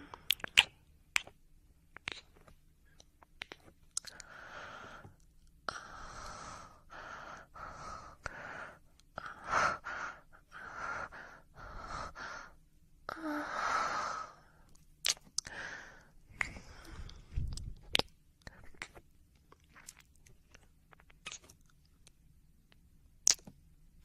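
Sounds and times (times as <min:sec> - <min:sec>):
person breathing heavily: 0:04.1 - 0:14.6, 0:15.4 - 0:17.5.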